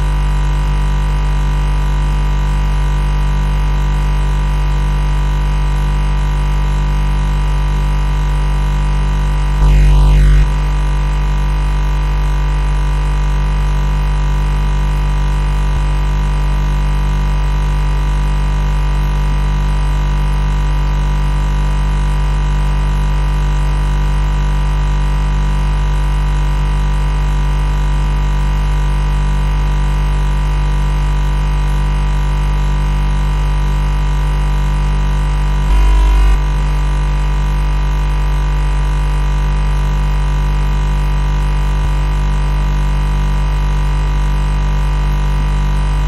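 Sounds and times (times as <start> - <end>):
faint high whine: 9.5 - 11.4, 35.6 - 36.9
refrigerator compressor humming: 35.6 - 36.6.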